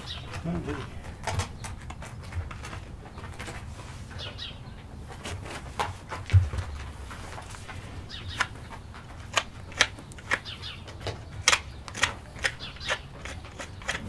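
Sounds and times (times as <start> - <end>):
knife scraping hoof: 11.4 - 14.0.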